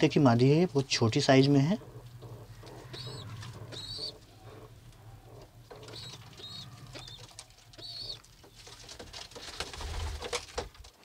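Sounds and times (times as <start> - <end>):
pigeons cooing: 1.7 - 8.7.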